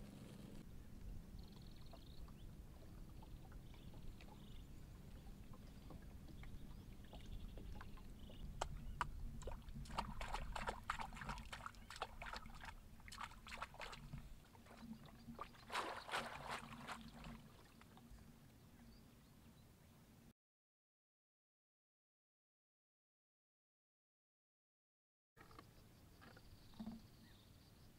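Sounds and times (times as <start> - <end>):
hands splashing in water: 15.5 - 17.6.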